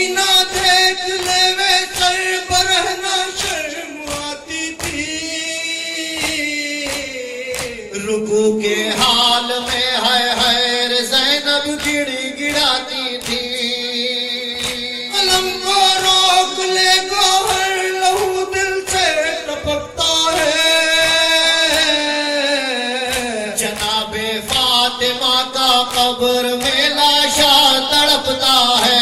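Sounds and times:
men singing a lament: 0:00.0 - 0:29.0
sharp rhythmic beats: 0:00.0 - 0:29.0.

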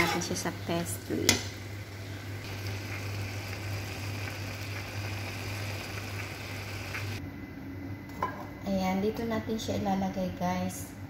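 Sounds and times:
filling simmering in a pan: 0:01.1 - 0:07.2.

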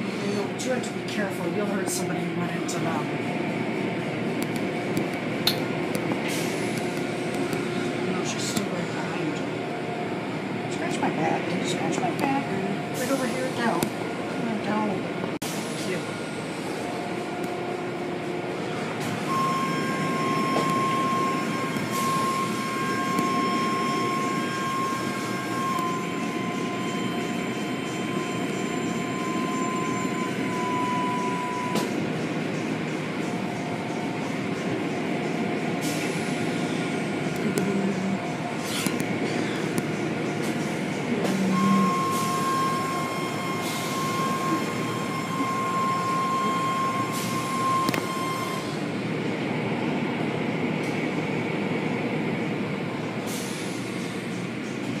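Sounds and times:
machinery noise: 0:00.0 - 0:55.0
high whine: 0:15.8 - 0:48.8.

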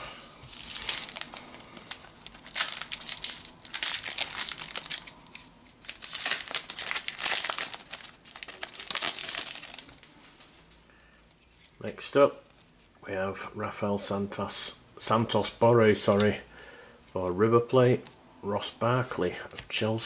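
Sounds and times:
foil wrapper crinkling: 0:00.5 - 0:10.2.

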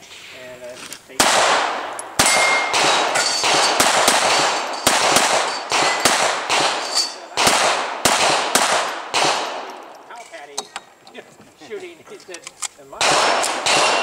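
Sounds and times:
pistol shots echoing: 0:01.2 - 0:10.1, 0:13.0 - 0:14.0.

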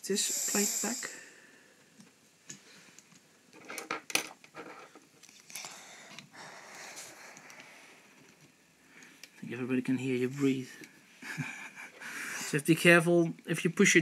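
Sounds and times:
person breathing close to microphone: 0:05.5 - 0:08.2, 0:11.9 - 0:12.6.

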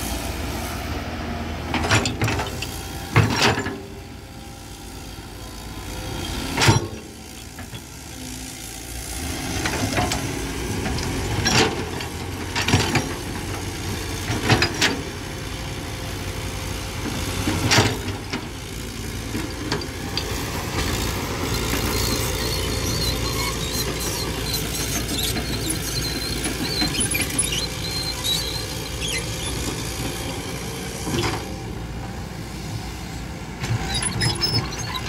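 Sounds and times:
excavator diesel engine running: 0:00.0 - 0:35.0
metal clanks from excavator bucket: 0:06.5 - 0:07.9.

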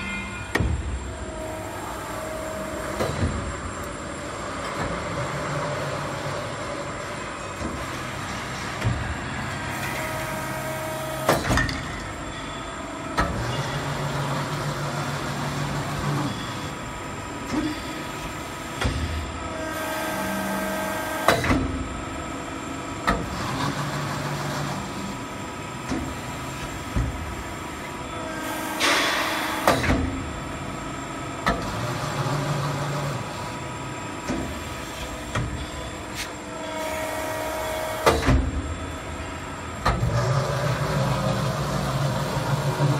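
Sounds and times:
machine whining tones: 0:00.0 - 0:22.6, 0:23.4 - 0:42.9
hydraulic press machine hum: 0:00.0 - 0:42.9
machine clunks: 0:00.5 - 0:01.0, 0:11.2 - 0:12.5, 0:28.8 - 0:30.2.

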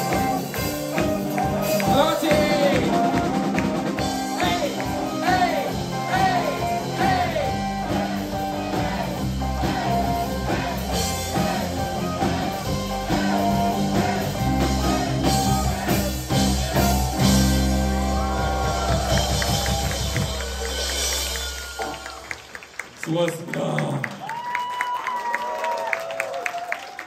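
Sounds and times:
bass guitar: 0:00.0 - 0:22.6
distorted electric guitars: 0:00.0 - 0:22.6
drums: 0:00.0 - 0:25.0
person singing: 0:04.2 - 0:10.8.

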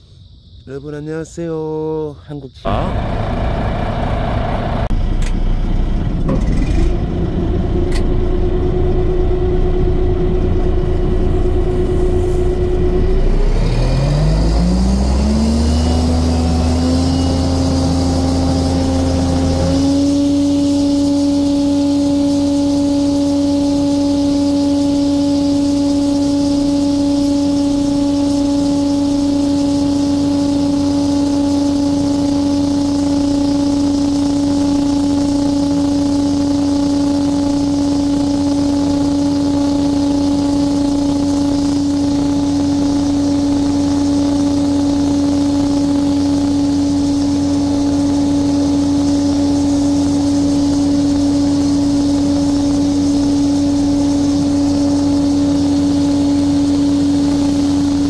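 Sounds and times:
sprayer fan and engine hum: 0:02.6 - 0:58.0
spray hiss: 0:11.7 - 0:12.7.

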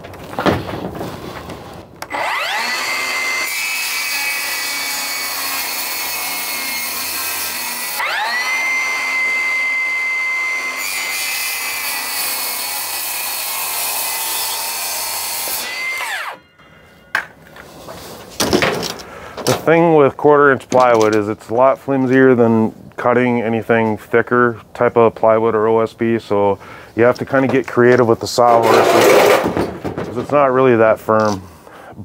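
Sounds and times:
circular saw cutting plywood: 0:01.5 - 0:16.4.

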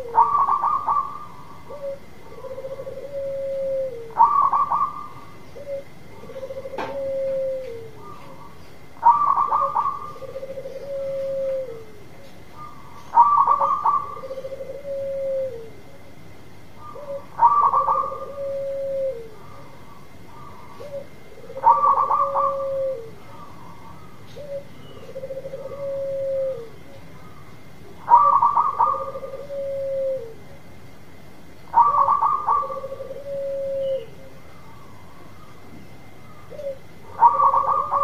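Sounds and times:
dove cooing: 0:00.0 - 0:16.2, 0:16.8 - 0:30.7, 0:31.7 - 0:38.0.

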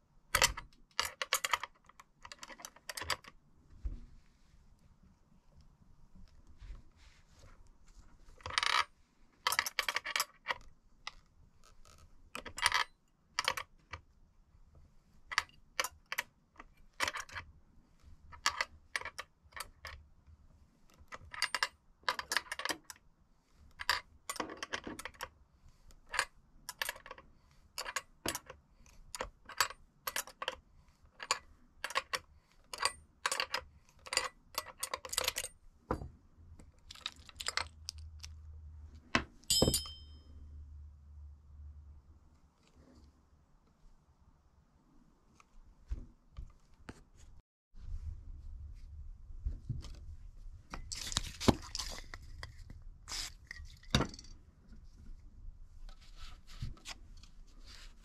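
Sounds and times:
small metal tools clinking: 0:39.5 - 0:40.3.

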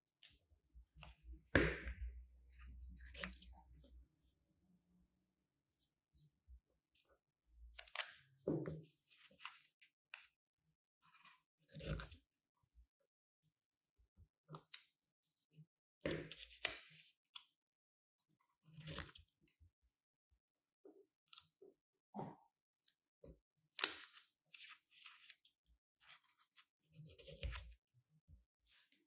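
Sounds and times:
scissors snipping paper: 0:23.8 - 0:24.2.

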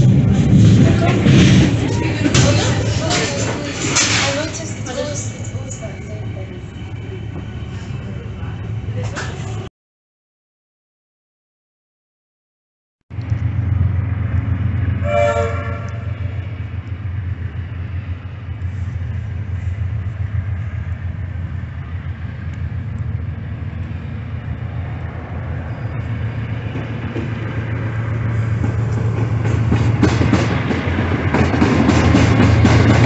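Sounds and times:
low rumble: 0:00.0 - 0:09.7, 0:13.1 - 0:33.0
train horn: 0:15.0 - 0:16.4.

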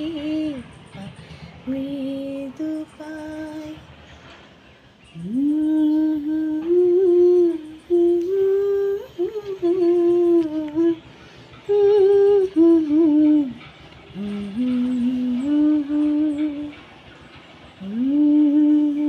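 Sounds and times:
woman humming: 0:05.2 - 0:11.0, 0:11.7 - 0:13.6, 0:14.2 - 0:16.8
breaths: 0:11.1 - 0:11.6.

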